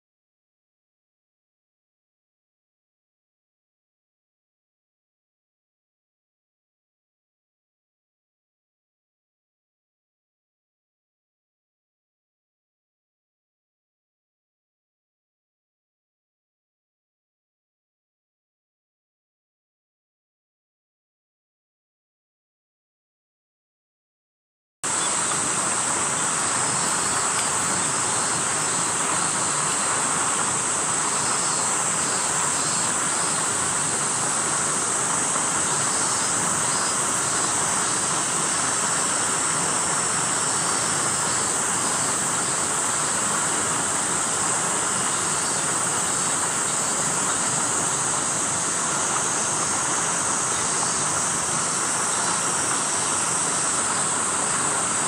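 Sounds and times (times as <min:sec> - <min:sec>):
cicadas shrilling: 0:24.8 - 0:55.0
rushing hiss: 0:24.9 - 0:55.0.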